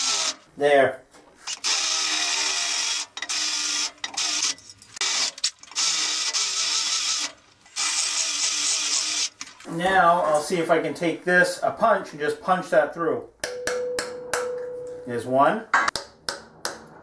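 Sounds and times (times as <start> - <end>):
cordless drill whining: 0.0 - 0.4, 1.4 - 9.3.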